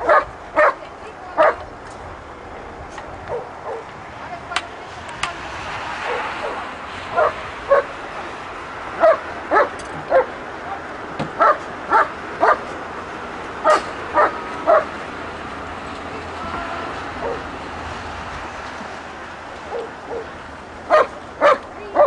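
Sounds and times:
dog barking: 0.0 - 0.8, 1.4 - 1.6, 3.3 - 3.9, 6.0 - 8.0, 9.0 - 10.4, 11.4 - 12.6, 13.6 - 14.9, 17.2 - 17.4, 19.7 - 20.3, 20.9 - 22.0.

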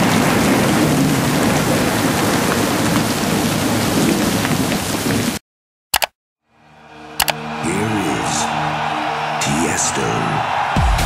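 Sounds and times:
low rumble of thunder: 0.0 - 5.3
heavy rain: 0.0 - 5.4.

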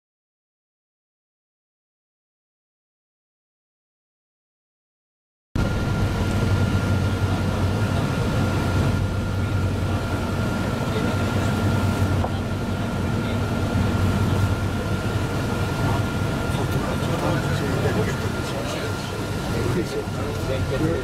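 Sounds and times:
engine and road drone: 5.6 - 21.0
high whine: 5.6 - 21.0.

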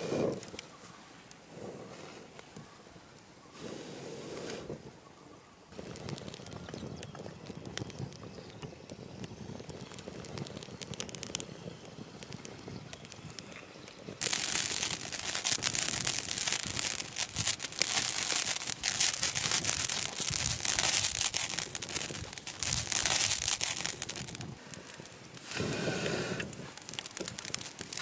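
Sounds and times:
seeds boiling in water: 0.0 - 1.5, 5.6 - 28.0
froth bubbling and popping: 5.7 - 28.0.

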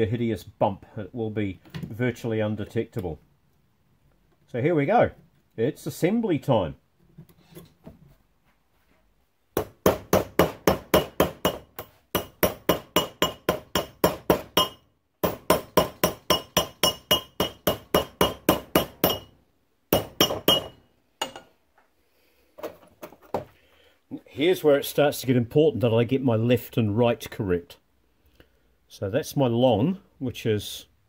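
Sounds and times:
hammer striking metal strip: 9.6 - 19.3, 20.0 - 21.4.

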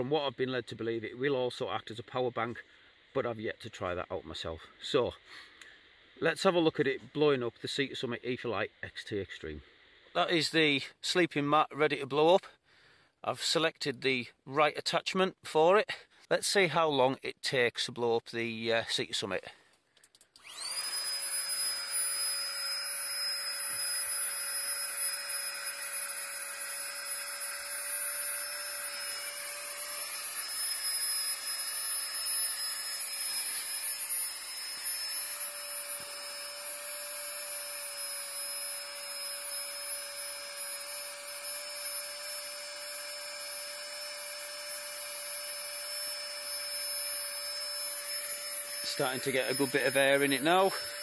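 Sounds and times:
battery air pump whining and humming: 20.1 - 51.0.

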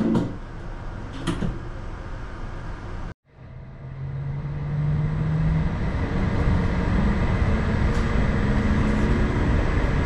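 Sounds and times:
train whine rising in pitch: 3.3 - 10.0.

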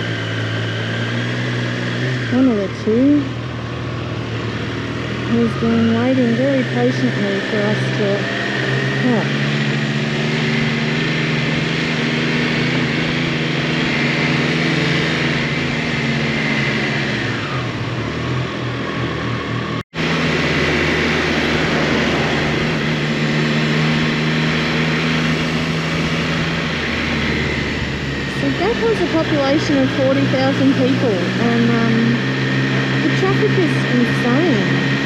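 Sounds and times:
motorcycle engine running: 0.0 - 35.0
road and wind noise: 0.0 - 35.0.

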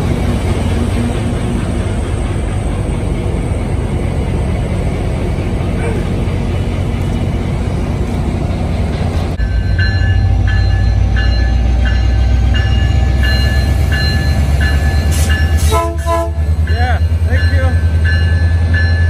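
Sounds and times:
diesel locomotive idling: 0.0 - 19.0
locomotive bell ringing: 9.4 - 19.0.

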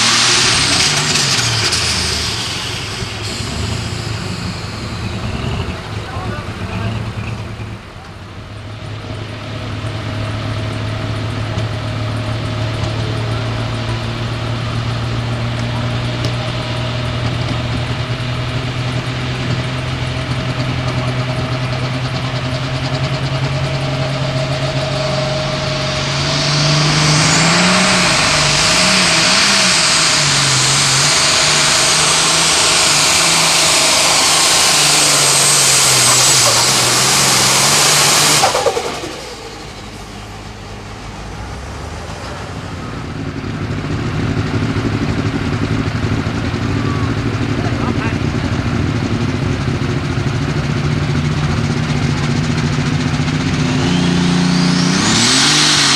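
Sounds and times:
high turbo hiss: 0.0 - 5.6, 23.8 - 42.8
diesel tractor engine revving: 0.0 - 55.9.

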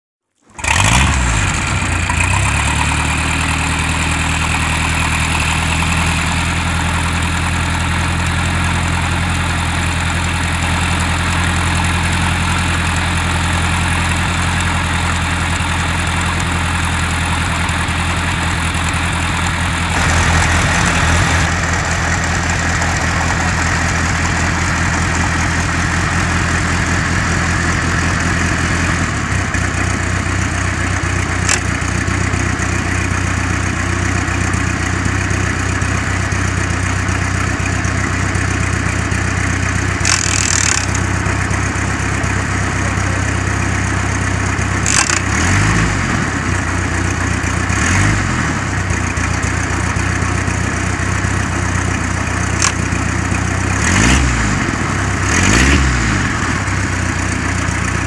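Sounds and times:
boat engine idling: 0.5 - 45.5.

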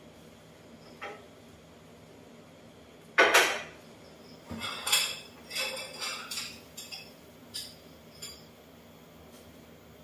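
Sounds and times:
metal utensils clinking: 4.5 - 8.5.

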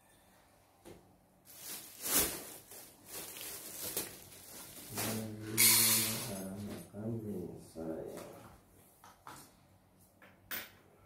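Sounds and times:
plastic bag rustling: 1.4 - 6.8.

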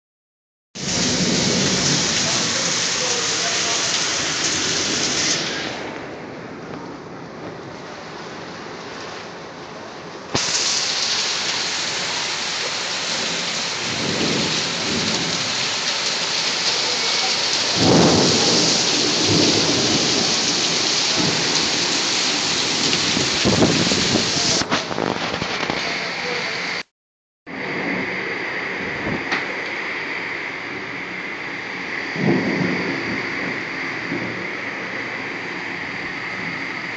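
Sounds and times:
thunder rumbling: 0.8 - 7.9, 13.1 - 16.0, 16.8 - 26.0, 27.5 - 36.9
torrential rain: 0.8 - 26.9, 27.5 - 36.9.

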